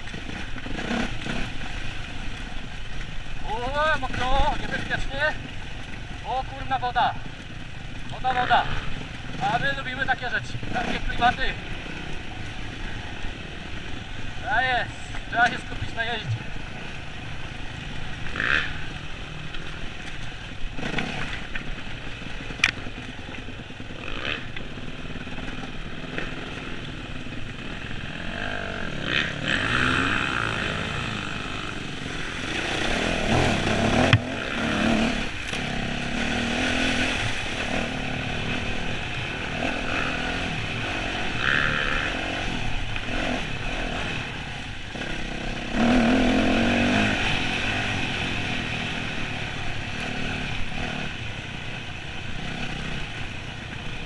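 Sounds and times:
dirt bike engine revving: 0:00.0 - 0:54.0
motorbike riding through water: 0:00.0 - 0:54.0.

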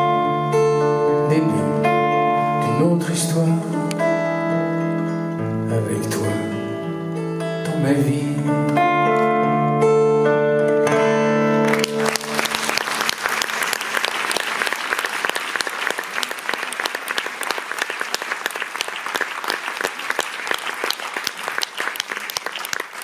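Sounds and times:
guitar chord: 0:00.0 - 0:12.7
audience applauding: 0:11.6 - 0:23.0.

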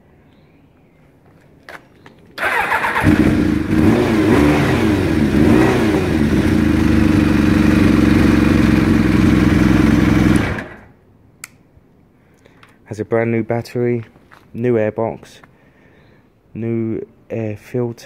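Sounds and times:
motorcycle engine revving and idling: 0:02.4 - 0:10.9
motorcycle engine running down: 0:02.4 - 0:10.9.

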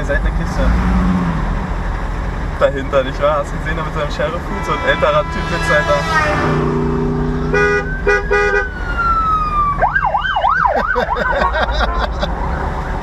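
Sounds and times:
car engine and road noise: 0:00.0 - 0:13.0
vehicle horn toots: 0:04.2 - 0:08.8, 0:11.6 - 0:12.3
siren wailing and yelping: 0:07.6 - 0:11.4.

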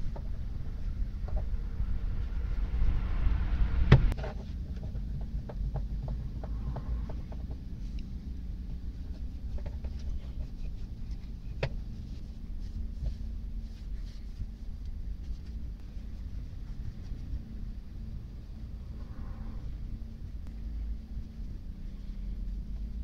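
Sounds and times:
steady low rumble: 0:00.0 - 0:23.0
cloth rubbing on metal: 0:06.6 - 0:23.0.

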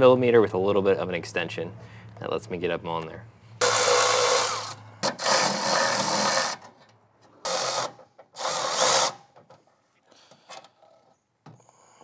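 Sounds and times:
cordless electric ratchet bursts: 0:03.6 - 0:06.7, 0:07.4 - 0:09.2.

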